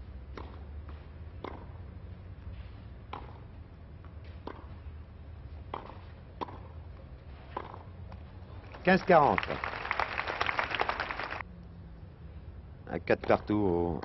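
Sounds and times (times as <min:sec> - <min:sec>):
racket hitting tennis ball: 0:00.3 - 0:01.7, 0:03.1 - 0:03.5, 0:04.2 - 0:04.8, 0:05.6 - 0:06.8, 0:07.4 - 0:08.2.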